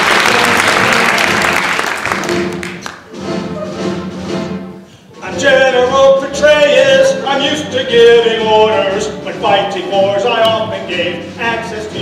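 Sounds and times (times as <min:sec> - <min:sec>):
audience applause: 0:00.0 - 0:03.1
slow instrumental music: 0:00.0 - 0:12.0.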